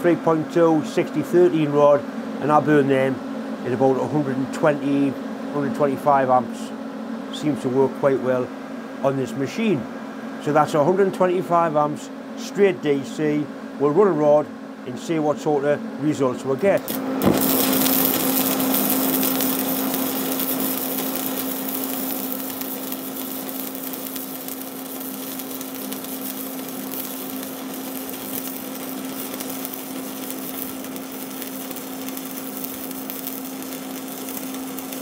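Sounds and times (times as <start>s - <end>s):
low electrical hum: 0.0s - 35.0s
welding arc hissing: 16.7s - 35.0s.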